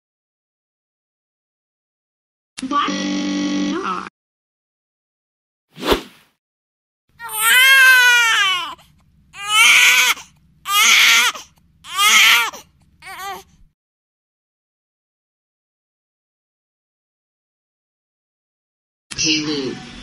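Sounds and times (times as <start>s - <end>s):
baby crying: 7.2s - 13.5s.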